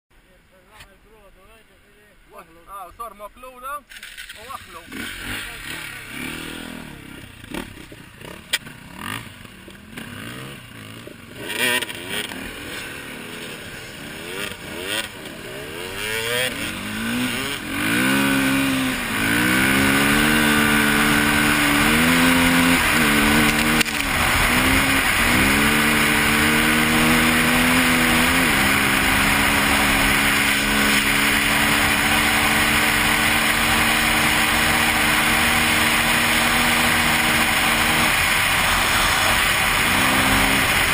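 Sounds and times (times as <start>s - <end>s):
motorcycle engine revving: 3.9s - 40.9s.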